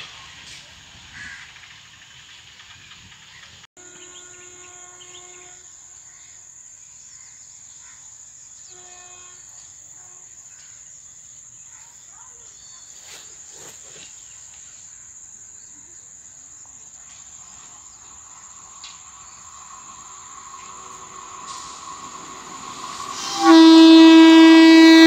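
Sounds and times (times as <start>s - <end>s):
distant train horn: 3.8s - 6.0s, 8.7s - 10.4s, 18.8s - 25.0s
crickets shrilling: 12.3s - 25.0s.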